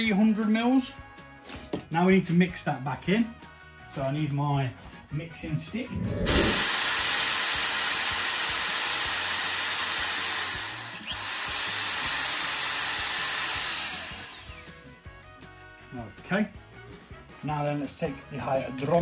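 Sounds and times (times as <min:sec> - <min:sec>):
electric drill stirring liquid: 0:06.2 - 0:14.9.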